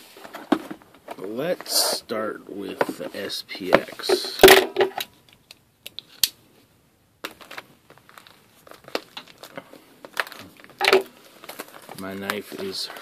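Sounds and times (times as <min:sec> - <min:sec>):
plastic wrap crinkling and tearing: 0:07.2 - 0:13.0.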